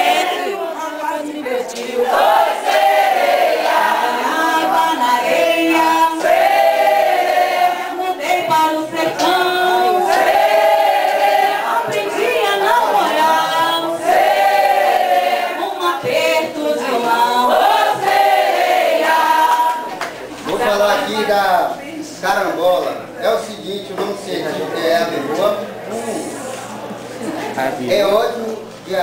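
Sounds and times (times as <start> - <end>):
group singing unaccompanied: 0.0 - 20.9.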